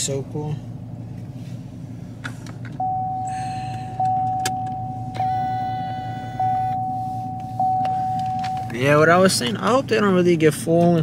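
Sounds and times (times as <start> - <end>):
car engine idling: 0.0 - 11.0
electronic chime tone: 2.8 - 3.4, 4.1 - 8.7.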